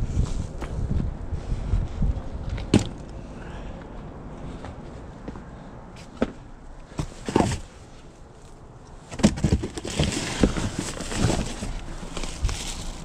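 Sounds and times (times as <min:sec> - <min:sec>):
rustling with small bumps: 0:03.9 - 0:13.0.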